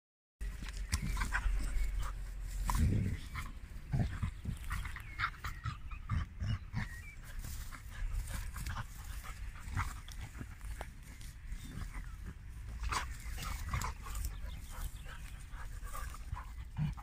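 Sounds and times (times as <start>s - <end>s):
dogs growling and grunting: 0.8s - 17.0s.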